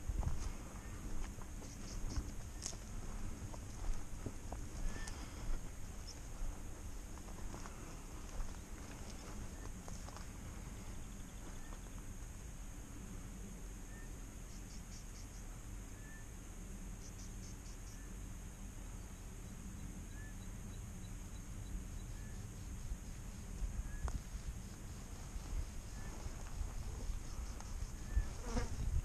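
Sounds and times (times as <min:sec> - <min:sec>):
low wind rumble: 0:00.0 - 0:14.5, 0:18.0 - 0:29.0
insect pulsed trills: 0:00.0 - 0:29.0
insects droning: 0:00.0 - 0:29.0.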